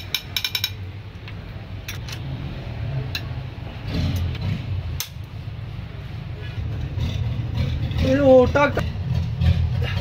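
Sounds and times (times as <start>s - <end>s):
hand tools clicking on metal: 0.0s - 0.8s.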